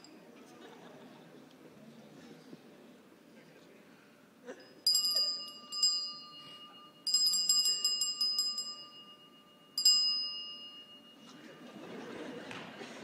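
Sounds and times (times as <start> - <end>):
small bell ringing: 4.6 - 12.0.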